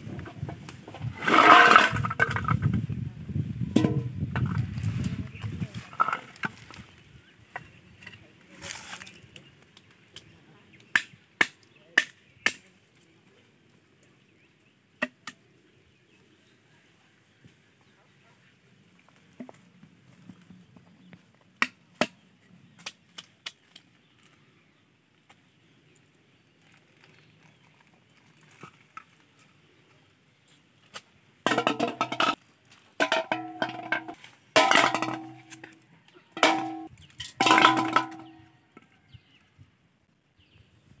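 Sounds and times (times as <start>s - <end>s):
plastic bottles clanging into metal basin: 1.1s - 2.7s, 3.7s - 5.2s, 5.8s - 6.8s, 31.4s - 32.4s, 33.0s - 38.5s.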